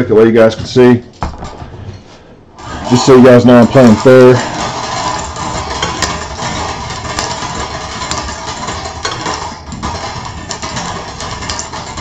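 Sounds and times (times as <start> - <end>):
balls rattling and clicking: 2.6 - 12.0.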